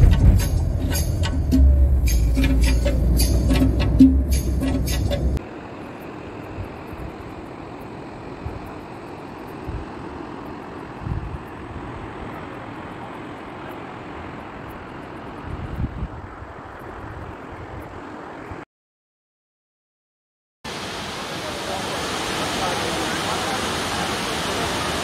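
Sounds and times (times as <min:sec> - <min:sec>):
wind thumps on microphone: 0:00.0 - 0:00.9
music with heavy beat: 0:00.0 - 0:05.4
river water flowing through rapids: 0:20.7 - 0:25.0.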